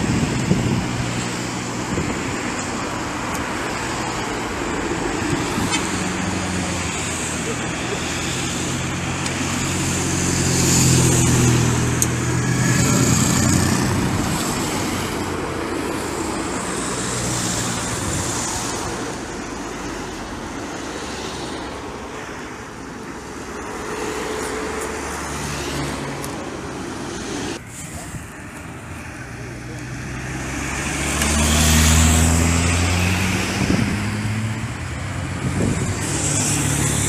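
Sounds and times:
race cars driving past: 28.7s - 37.0s.

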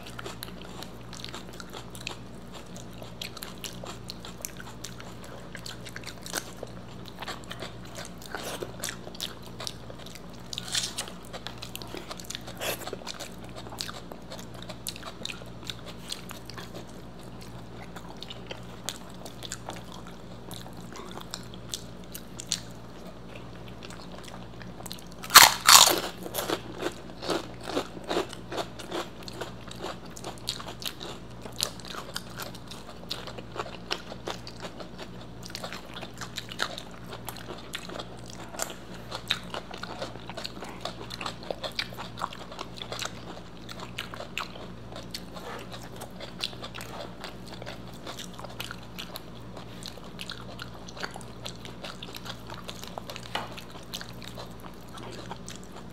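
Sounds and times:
chewing crunchy food: 0.0s - 55.9s
crunching bite: 10.3s - 15.1s, 25.2s - 30.0s.

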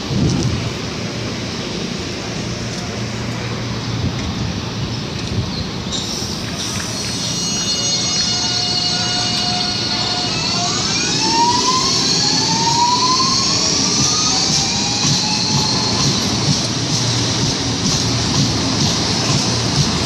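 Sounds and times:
train running rumble: 0.0s - 20.0s
train traction motor whine: 0.0s - 20.0s.

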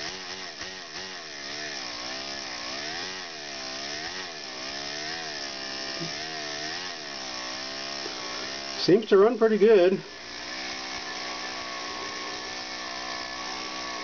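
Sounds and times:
model engine buzzing whine: 0.0s - 14.0s.

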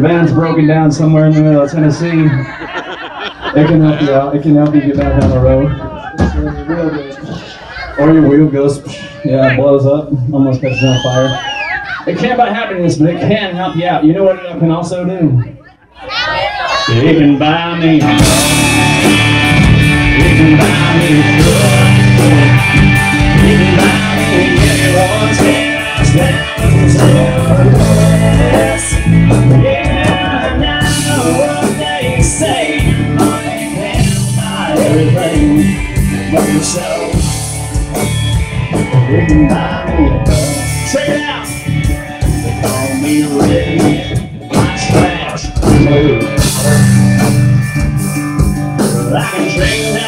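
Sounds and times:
man singing: 16.9s - 19.2s, 19.8s - 37.5s, 38.8s - 47.0s, 48.8s - 50.0s
acoustic guitar: 18.0s - 50.0s
drums and cymbals: 18.0s - 50.0s.

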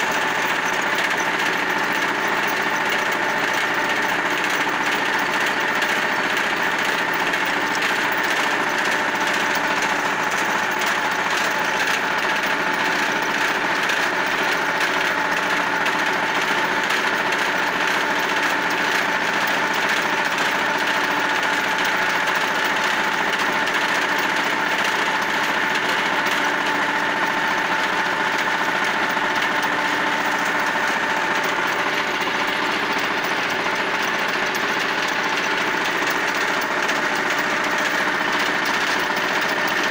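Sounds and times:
rotary tiller churning soil: 0.0s - 39.9s
tractor diesel engine drone: 0.0s - 39.9s.

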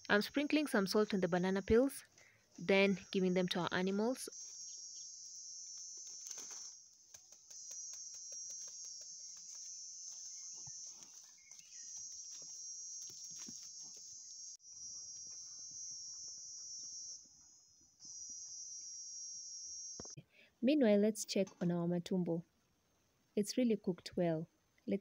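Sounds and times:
high-pitched insect chirring: 0.1s - 2.0s, 2.6s - 20.2s.

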